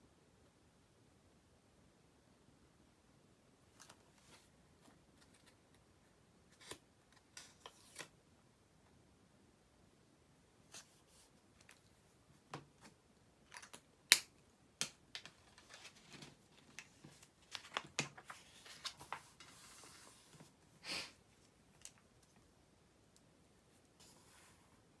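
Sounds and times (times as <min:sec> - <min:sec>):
paper rustle: 0:15.2 - 0:20.6.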